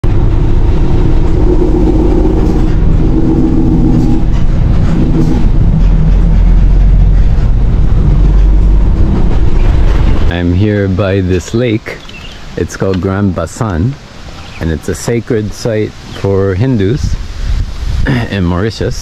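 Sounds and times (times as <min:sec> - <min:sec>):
vehicle engine drone: 0:00.0 - 0:14.9.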